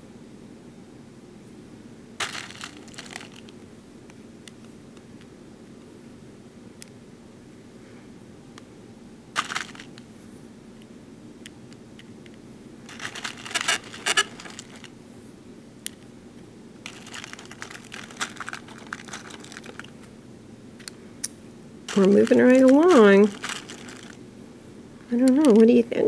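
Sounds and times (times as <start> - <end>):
plastic beads clicking and rattling: 2.2 - 3.5, 9.4 - 10.0, 12.9 - 14.9, 16.9 - 19.9, 21.9 - 24.2.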